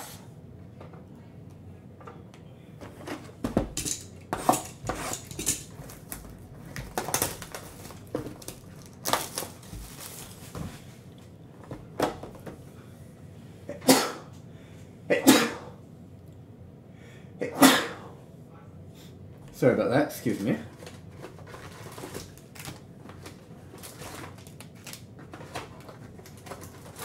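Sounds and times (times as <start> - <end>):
foil wrappers crinkling and tearing: 5.1 - 10.8, 20.4 - 27.0
person sneezing: 13.7 - 14.3, 15.1 - 15.8, 17.4 - 18.2.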